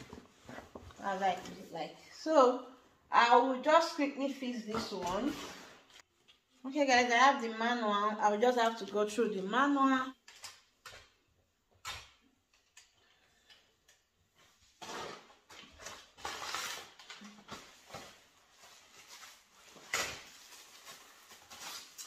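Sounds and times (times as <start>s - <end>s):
fabric and packaging rustling: 14.4s - 22.0s.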